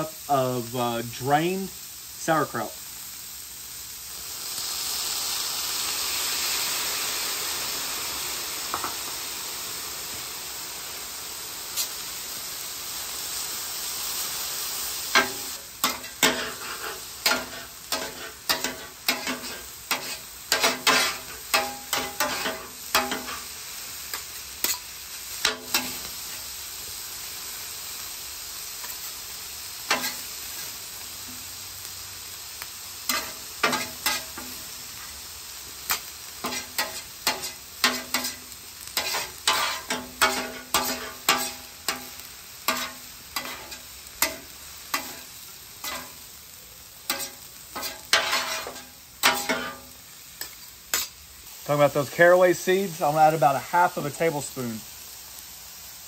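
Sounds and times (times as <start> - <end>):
cabbage sizzling on griddle: 0.0 - 56.0
metal spatulas scraping griddle: 15.2 - 23.5, 29.9 - 30.2, 33.1 - 35.1, 35.9 - 46.2, 47.1 - 51.2.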